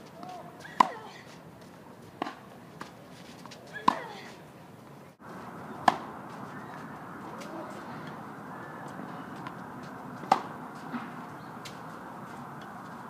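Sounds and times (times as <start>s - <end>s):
steady background hiss: 0.0s - 13.0s
tennis ball struck by racket: 2.2s - 2.9s, 5.8s - 6.2s, 9.3s - 11.9s.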